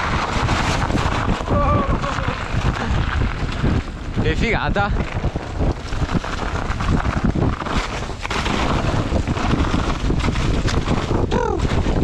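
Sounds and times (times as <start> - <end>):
tyres rattling over trail: 0.0 - 12.0
wind buffeting microphone: 0.0 - 12.0.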